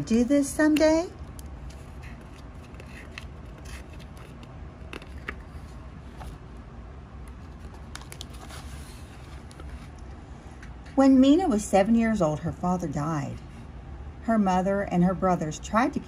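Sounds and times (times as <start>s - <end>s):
low steady hum: 0.0s - 16.0s
book pages turning: 1.4s - 6.4s, 7.2s - 10.0s.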